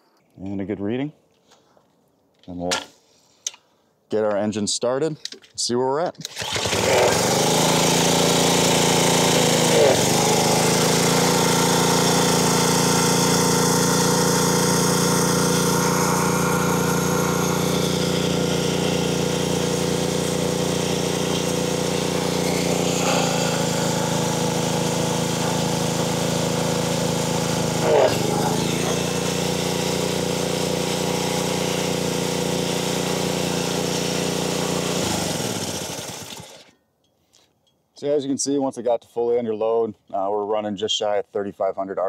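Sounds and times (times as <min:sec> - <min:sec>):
pressure washer engine running: 0:06.2 - 0:36.7.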